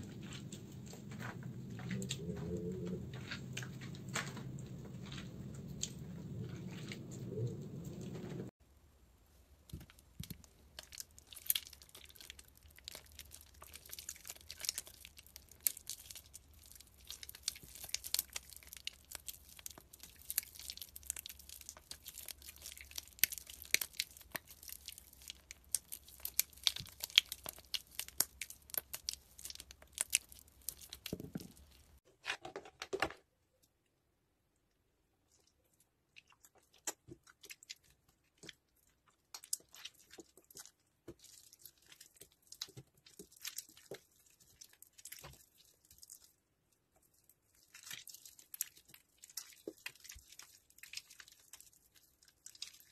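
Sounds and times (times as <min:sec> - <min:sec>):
wet soap crackling and squishing: 0:00.0 - 0:52.9.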